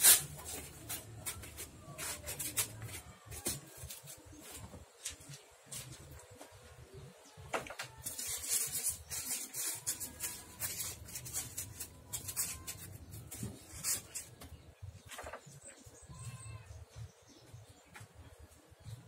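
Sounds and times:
styrofoam scraping on wood: 0.0 - 4.2, 7.9 - 14.6.

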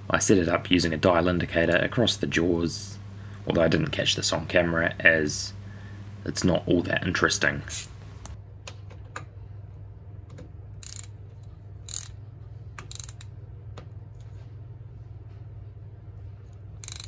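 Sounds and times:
steady low hum: 0.0 - 17.0
ratchet wrench clicking: 10.8 - 13.4, 16.8 - 17.0.

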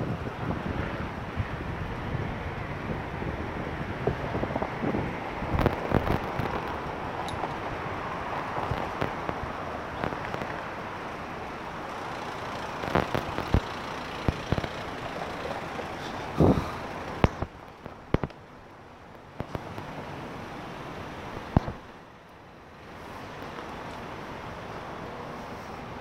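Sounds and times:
city street traffic: 0.0 - 26.0
sharp clicks and knocks: 10.0 - 10.7, 12.2 - 16.0, 17.0 - 18.4, 19.4 - 19.9.

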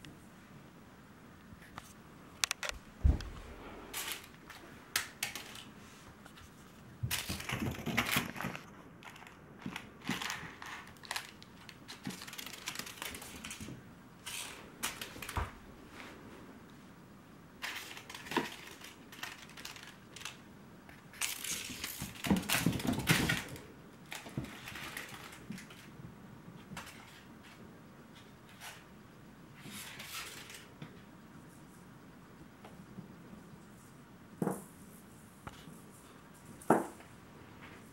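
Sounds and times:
crinkle toy crackling: 7.1 - 15.5, 17.6 - 25.9.

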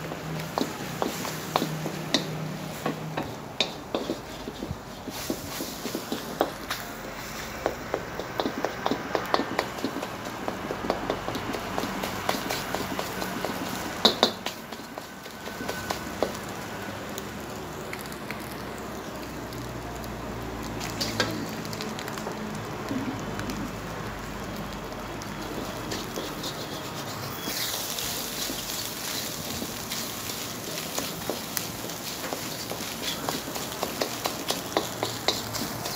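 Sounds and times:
food sizzling in a pan: 0.0 - 35.9
utensil scraping a pan: 3.6 - 6.4, 25.9 - 30.1, 32.1 - 35.9.

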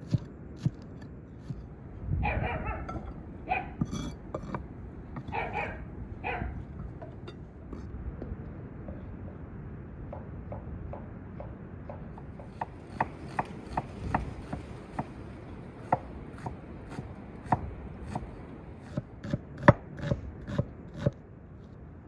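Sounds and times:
knife chopping on wooden board: 0.0 - 1.6, 3.8 - 4.6.

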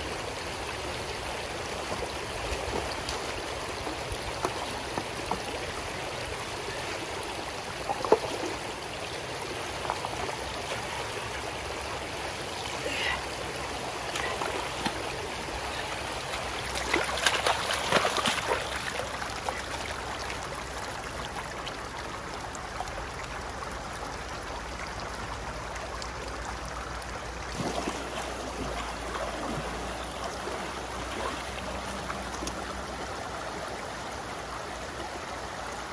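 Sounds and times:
stream running over rocks: 0.0 - 35.9
splashing and scuffing: 16.3 - 18.9.

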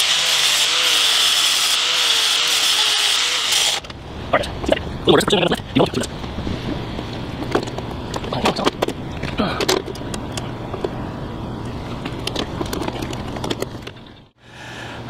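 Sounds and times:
steady low hum: 3.8 - 15.0
windshield hardware clicks and knocks: 7.4 - 11.0.

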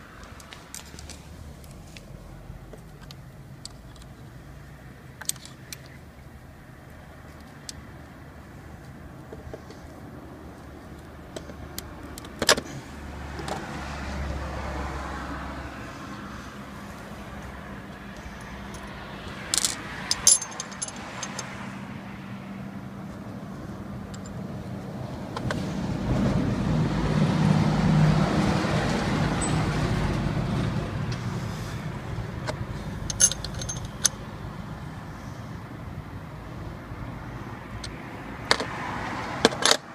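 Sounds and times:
metallic clicks and clinks: 5.2 - 5.9, 19.5 - 21.6, 33.0 - 34.2
passing vehicle rumble: 6.3 - 39.9.

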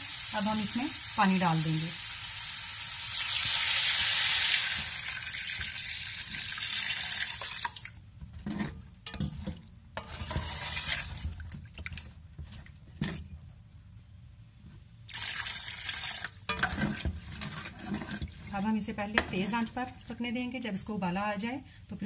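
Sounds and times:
water pouring into a pot: 0.0 - 8.0, 15.1 - 18.6.

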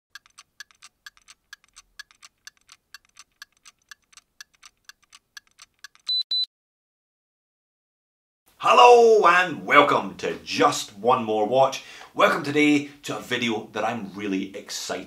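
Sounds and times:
watch ticking: 0.1 - 6.4
short high electronic beeps: 6.1 - 6.5.

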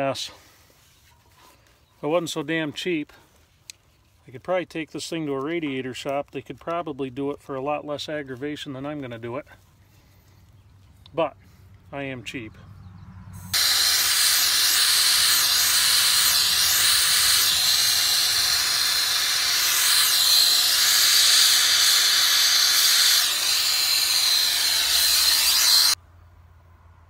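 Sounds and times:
torch flame hissing: 13.5 - 26.0.

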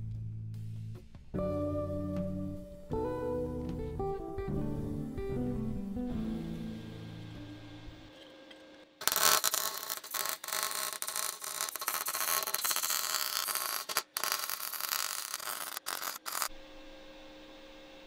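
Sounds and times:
welder arc crackling: 9.0 - 16.5.

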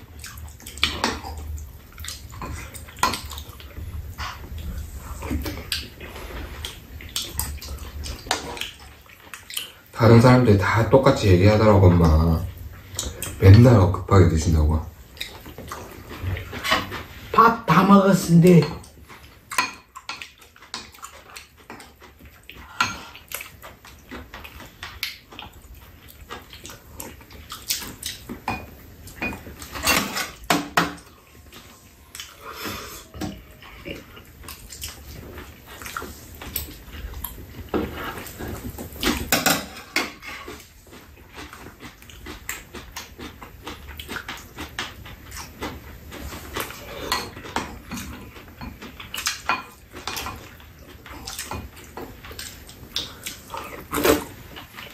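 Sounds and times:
chewing and mouth noises: 0.0 - 10.0, 15.0 - 17.3, 18.7 - 29.8, 31.0 - 39.4, 40.2 - 54.9.

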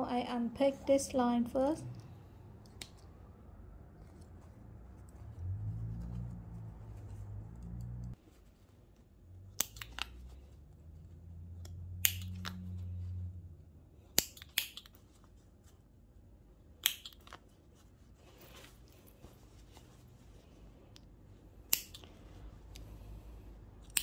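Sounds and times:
low hum: 0.0 - 8.2
thread snips cutting: 2.6 - 3.1, 9.6 - 10.2, 11.6 - 12.6, 14.1 - 15.0, 16.8 - 17.4, 21.7 - 22.9, 23.8 - 24.0.

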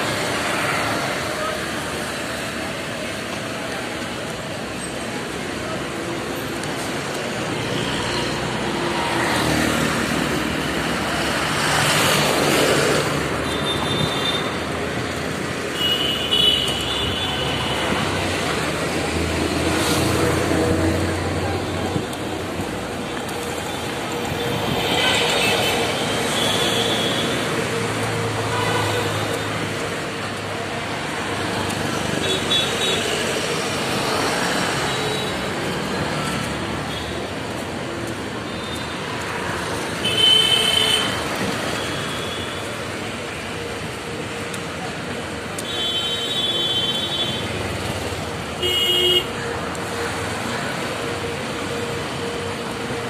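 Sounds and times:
vehicle horns tooting: 48.6 - 49.4.

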